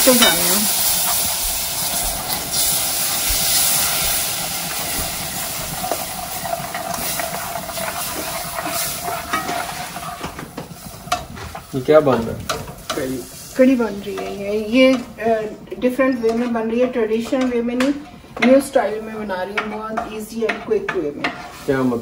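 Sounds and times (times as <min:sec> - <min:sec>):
yogurt sizzling in hot oil: 0:00.0 - 0:16.2, 0:16.8 - 0:22.0
spatula stirring: 0:05.6 - 0:10.4, 0:19.6 - 0:22.0.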